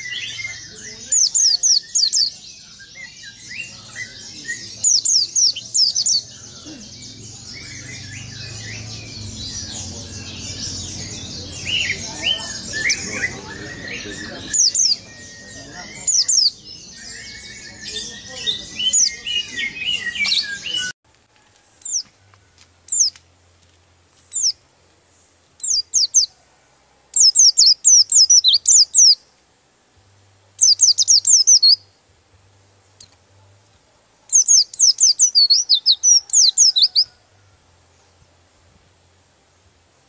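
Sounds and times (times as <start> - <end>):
high bird chirps: 0.0 - 20.9, 27.2 - 29.2, 30.6 - 31.9, 34.3 - 37.2.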